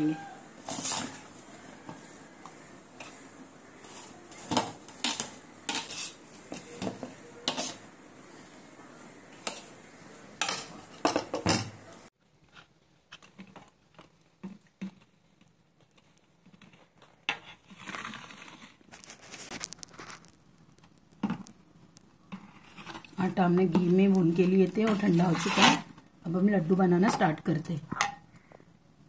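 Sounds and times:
metal spatula scraping steel plate: 0.0 - 7.9, 24.4 - 25.9.

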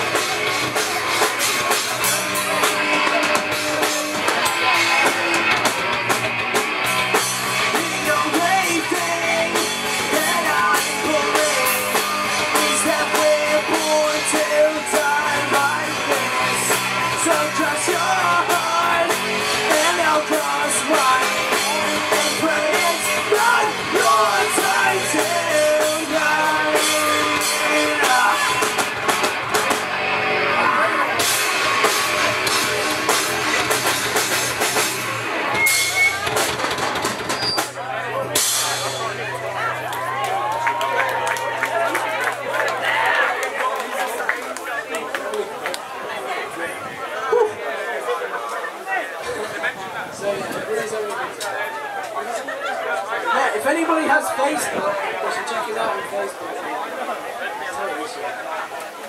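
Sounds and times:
drum kit: 0.0 - 42.4
electric guitars: 0.0 - 46.0
person singing: 7.6 - 28.9.

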